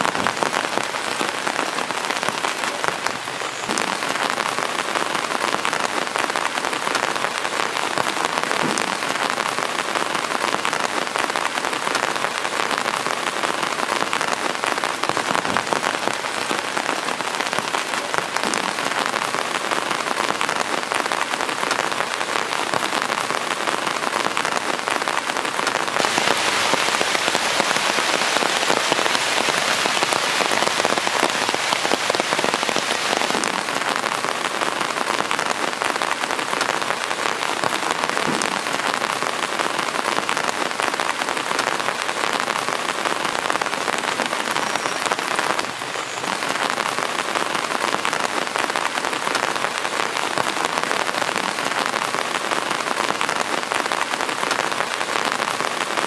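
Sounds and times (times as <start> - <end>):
heavy rain on leaves and grass: 0.0 - 56.0.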